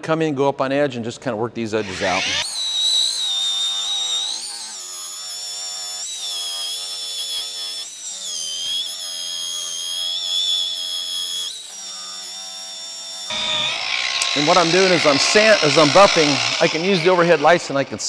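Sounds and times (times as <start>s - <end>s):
rotary polisher motor whining: 1.8s - 18.0s.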